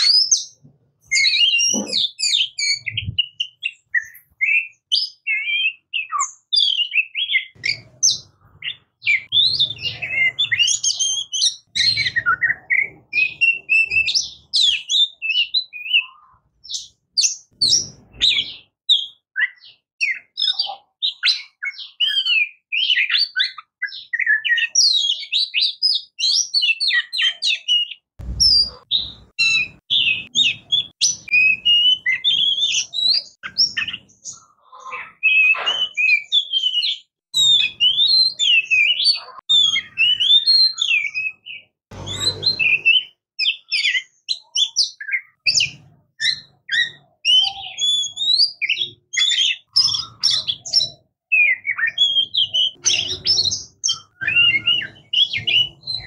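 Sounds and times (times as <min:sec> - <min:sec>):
bird singing whistled notes: 0:00.0 - 0:56.0
faint low rumble: 0:28.2 - 0:28.8.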